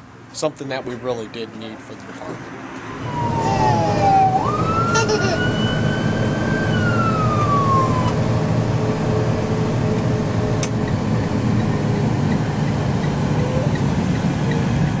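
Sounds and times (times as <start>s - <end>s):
truck engine and road noise: 0.0s - 15.0s
siren wailing: 2.9s - 9.1s.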